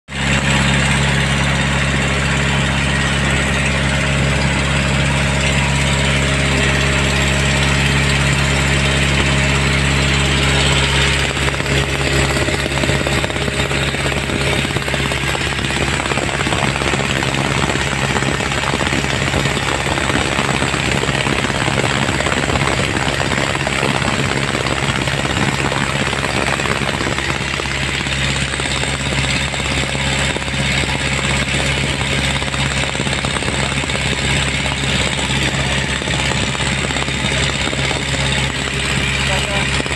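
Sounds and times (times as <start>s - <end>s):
boat engine running: 0.1s - 39.9s
wind: 0.1s - 39.9s.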